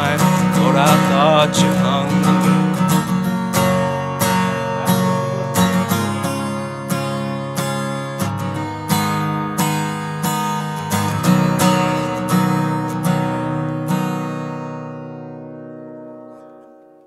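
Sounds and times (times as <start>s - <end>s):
acoustic guitar strumming: 0.0s - 17.0s.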